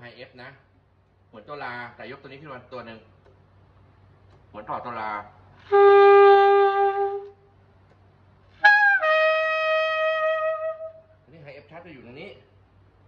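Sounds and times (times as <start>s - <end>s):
tenor saxophone held notes: 5.6s - 7.4s, 8.6s - 11.1s.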